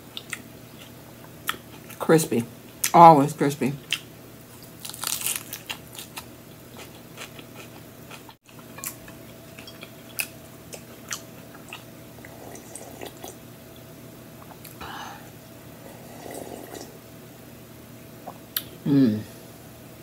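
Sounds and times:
lettuce crunching while chewed: 0:03.9 - 0:11.9.

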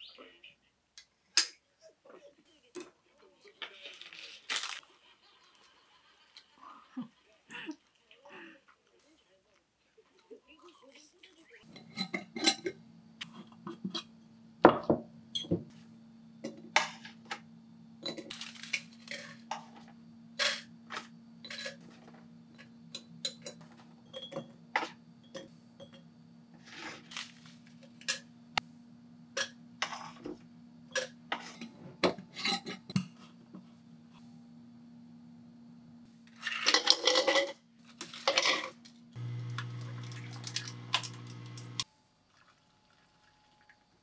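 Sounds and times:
low steady hum: 0:10.0 - 0:41.9.

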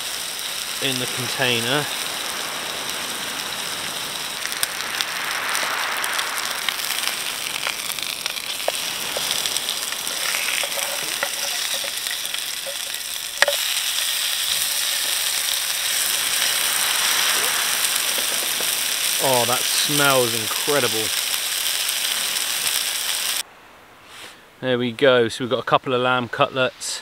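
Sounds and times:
meat sizzling in a pan: 0:00.0 - 0:23.4
oil spitting and popping: 0:04.4 - 0:22.0
wooden spatula scraping: 0:08.0 - 0:16.0.

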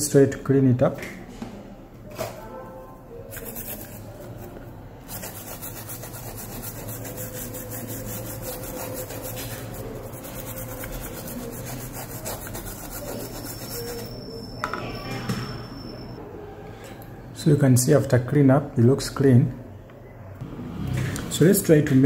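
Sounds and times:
brush scrubbing circuit board: 0:03.3 - 0:04.4, 0:05.1 - 0:14.1.

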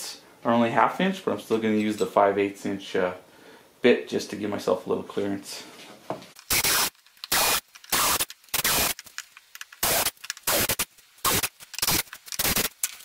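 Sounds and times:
cordless drill boring plastic: 0:06.4 - 0:13.0.

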